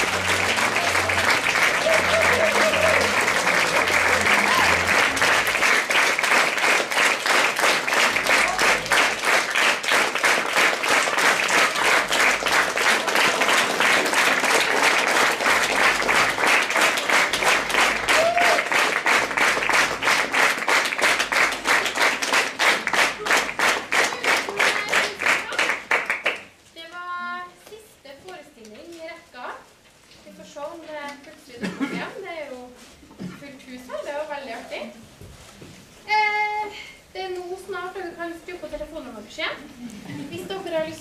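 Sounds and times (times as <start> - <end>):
audience applauding: 0.0 - 26.5.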